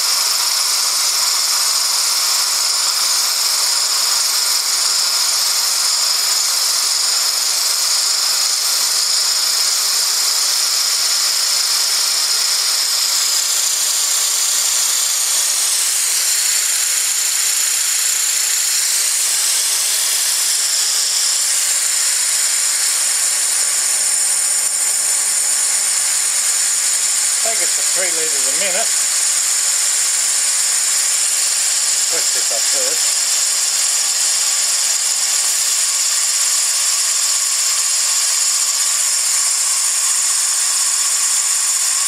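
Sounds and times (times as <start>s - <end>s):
compressed air hissing: 18.3s - 33.3s.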